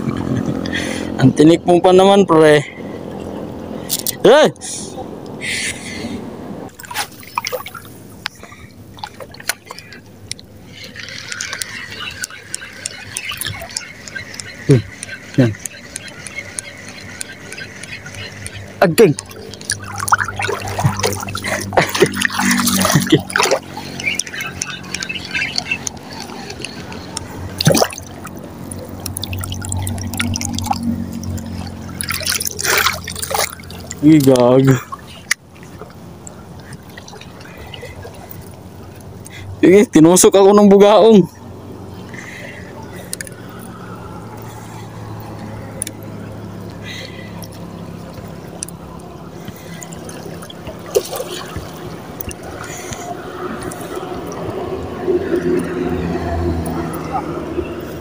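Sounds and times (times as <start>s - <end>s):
steady low hum: 4.5s - 39.6s
water lapping and dripping: 6.7s - 58.0s
small clicks: 9.4s - 20.2s.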